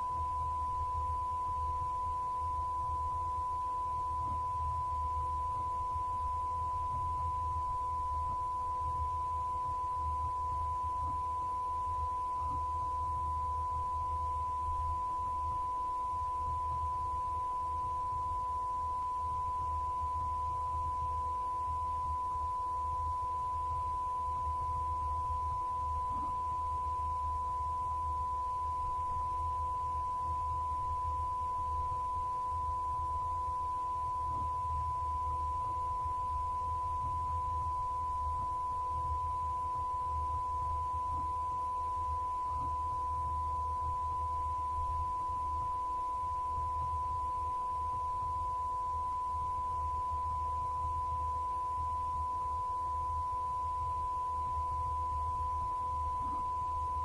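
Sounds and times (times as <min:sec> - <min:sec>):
faint low hum: 0:00.0 - 0:57.0.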